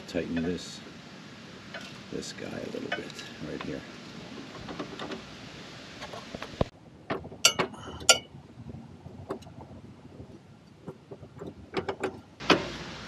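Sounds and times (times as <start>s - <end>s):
steady hiss: 0.0s - 6.8s, 12.4s - 13.0s.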